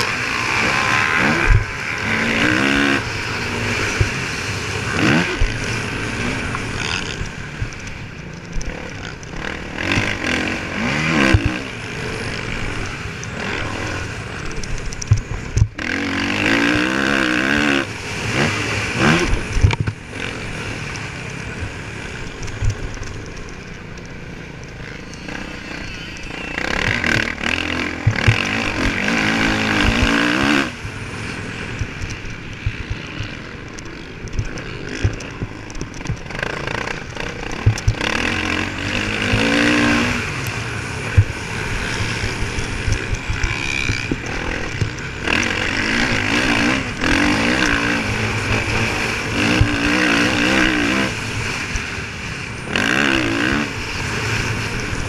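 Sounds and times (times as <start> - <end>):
motocross bike engine revving: 0.0 - 55.0
wind rushing over microphone: 26.9 - 55.0.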